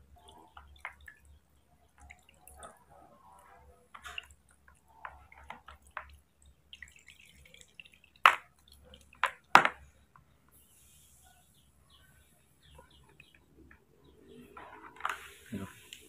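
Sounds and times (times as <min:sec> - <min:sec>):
water splashes: 0:00.0 - 0:09.5
water dripping into basin: 0:00.0 - 0:10.3.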